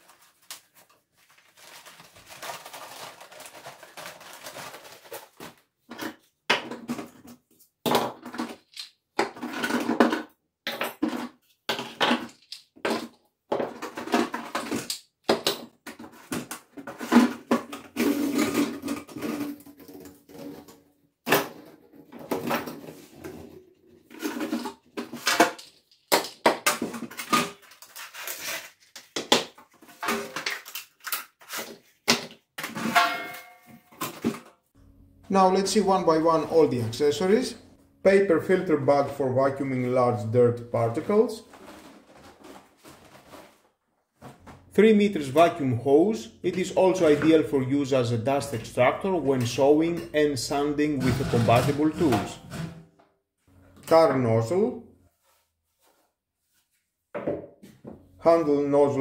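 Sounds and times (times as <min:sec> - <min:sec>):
plastic packaging crinkling: 0:00.0 - 0:05.6
hard plastic parts clattering: 0:01.6 - 0:34.6, 0:49.4 - 0:52.8.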